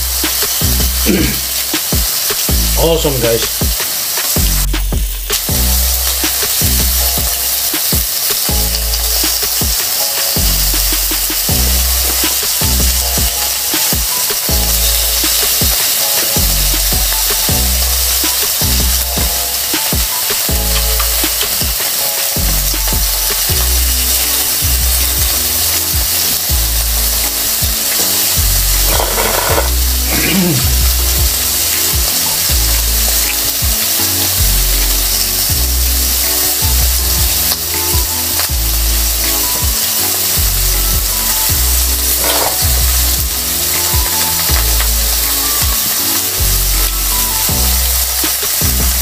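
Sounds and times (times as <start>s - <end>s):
meat sizzling on a grill pan: 0.0s - 49.0s.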